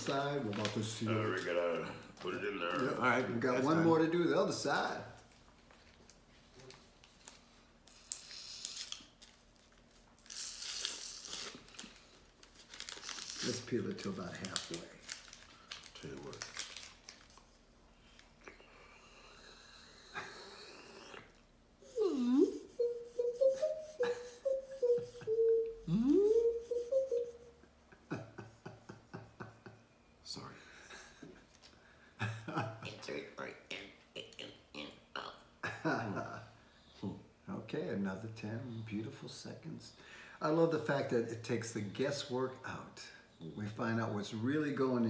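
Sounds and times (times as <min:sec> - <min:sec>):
plastic wrapper crinkling: 0:00.0 - 0:01.6, 0:05.2 - 0:18.3
man making vocal sound effect: 0:25.9 - 0:27.2.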